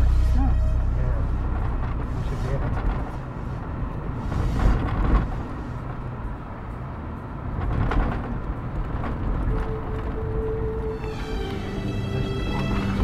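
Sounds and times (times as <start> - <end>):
engine and tyres rumbling: 0.0 - 13.0.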